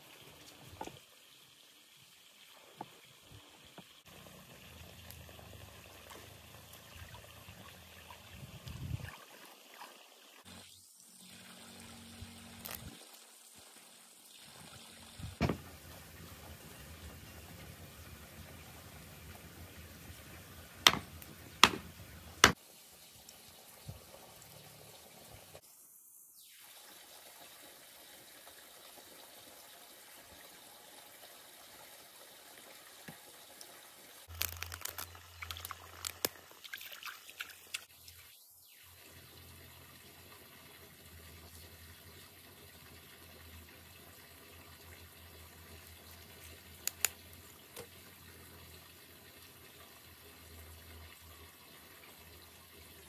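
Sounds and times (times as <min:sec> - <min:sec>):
faint trickling water: 0:00.0 - 0:25.6, 0:26.7 - 0:53.0
sharp knocks: 0:20.8 - 0:22.6.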